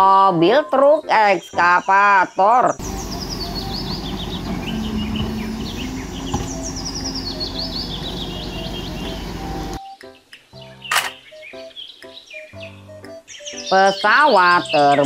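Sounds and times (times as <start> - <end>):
birds chirping: 0.8 - 15.0
excavator engine running: 2.8 - 9.8.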